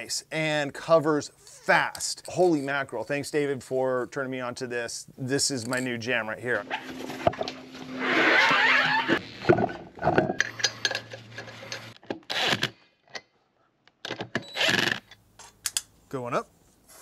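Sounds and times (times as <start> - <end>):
impact wrench bursts: 14.4 - 15.0.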